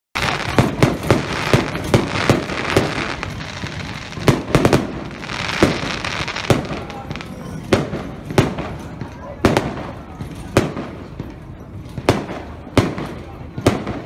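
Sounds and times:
firework shells bursting: 0:00.2 - 0:09.0.

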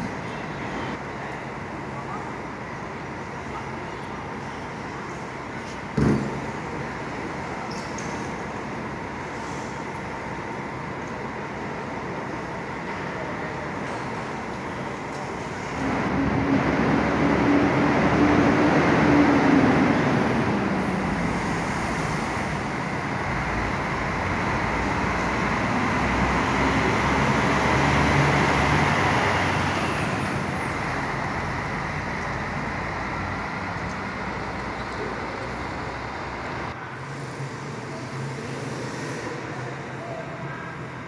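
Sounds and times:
road noise: 0:00.0 - 0:41.0
bus engine passing: 0:08.3 - 0:39.9.

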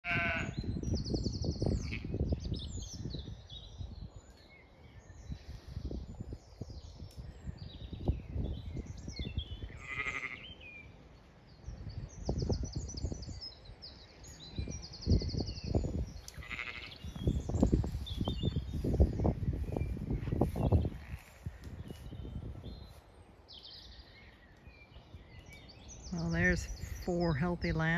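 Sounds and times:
sheep bleating: 0:00.0 - 0:00.6, 0:09.7 - 0:10.5, 0:16.4 - 0:17.0
small birds chirping: 0:00.1 - 0:27.9.

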